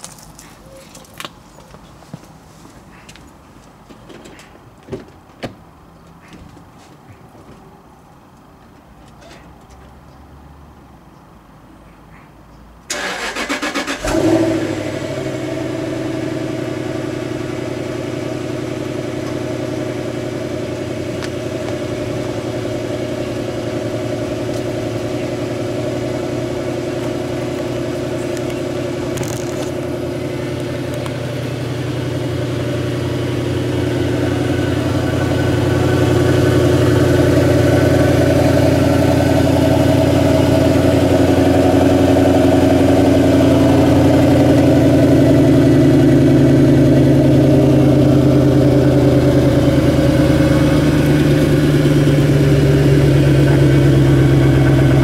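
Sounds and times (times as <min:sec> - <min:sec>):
car engine idling: 0:12.9 - 0:55.0.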